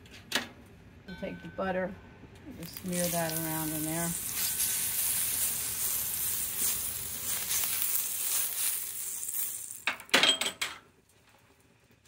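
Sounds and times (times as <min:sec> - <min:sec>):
butter sizzling on a griddle: 0:02.7 - 0:09.9.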